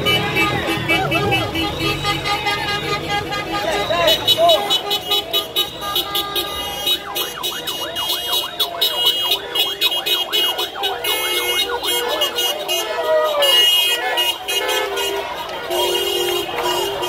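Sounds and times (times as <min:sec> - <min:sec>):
traffic noise: 0:00.0 - 0:17.0
electronic siren yelping: 0:07.0 - 0:12.3.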